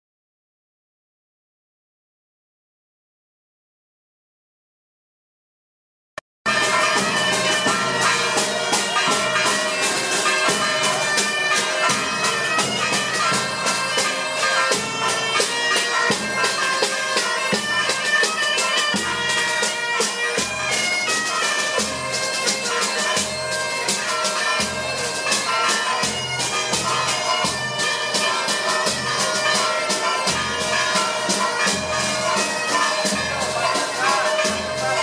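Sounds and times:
bagpipe playing a lively tune: 0:06.5 - 0:35.0
drums beating: 0:06.5 - 0:35.0.

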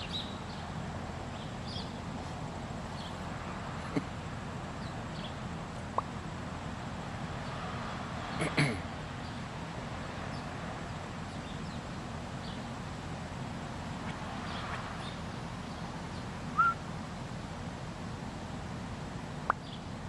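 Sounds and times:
birds chirping: 0:00.0 - 0:06.6, 0:09.2 - 0:17.0, 0:19.2 - 0:20.0
steady low hiss: 0:00.0 - 0:20.0
rising bird chirp: 0:14.5 - 0:16.8.

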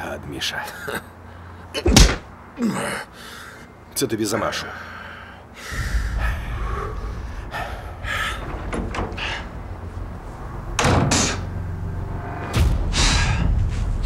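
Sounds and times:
heavy impacts: 0:01.8 - 0:02.3, 0:05.6 - 0:14.0
thuds of blows: 0:01.8 - 0:02.3.

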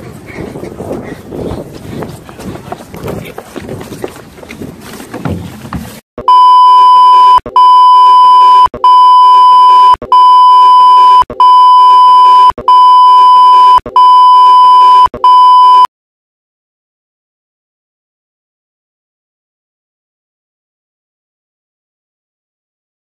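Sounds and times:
long high-pitched test tone beeps: 0:06.2 - 0:15.9.

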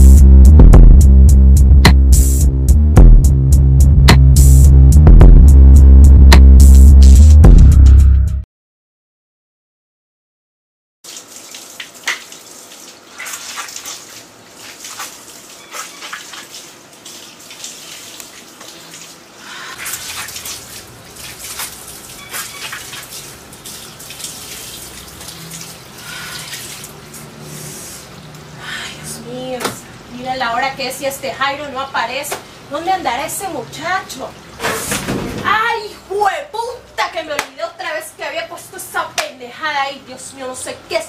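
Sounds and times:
water running and splashing: 0:11.0 - 0:28.5.

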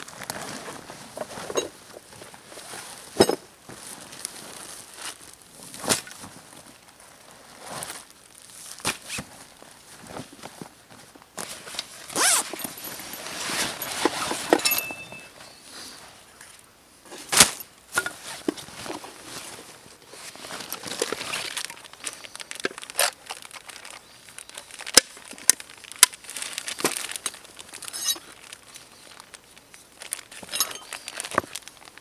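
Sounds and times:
heavy cloth rustling: 0:00.0 - 0:16.2.

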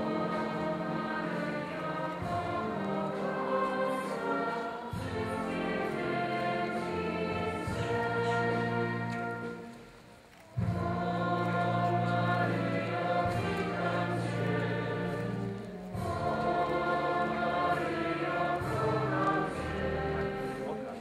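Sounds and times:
choir singing: 0:00.0 - 0:21.0
sustained low accompaniment: 0:00.0 - 0:21.0.

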